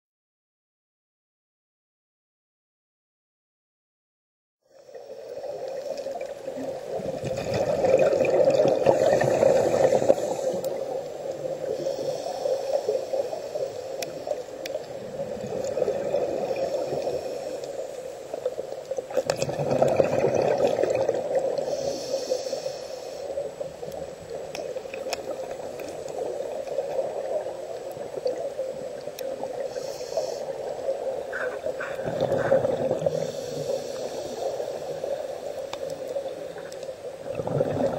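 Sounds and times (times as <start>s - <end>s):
bubbles gurgling underwater: 6.5s - 11.6s, 14.7s - 16.9s, 19.0s - 21.6s, 31.9s - 33.6s, 35.9s - 37.9s
regulator inhalation hiss: 8.8s - 14.7s, 16.3s - 18.8s, 21.4s - 23.9s, 29.5s - 36.6s.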